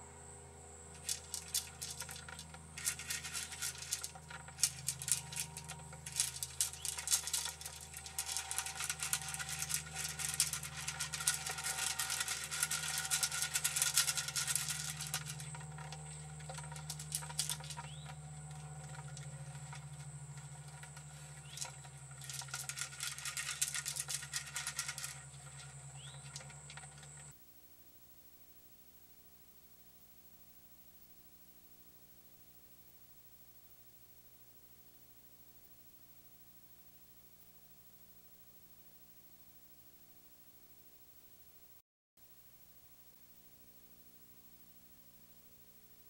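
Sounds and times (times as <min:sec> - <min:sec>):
deer crunching feed: 0:01.0 - 0:27.3.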